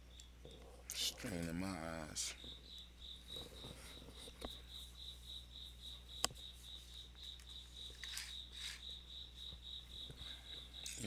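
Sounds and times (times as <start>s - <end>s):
insect chirping: 0.0s - 11.0s.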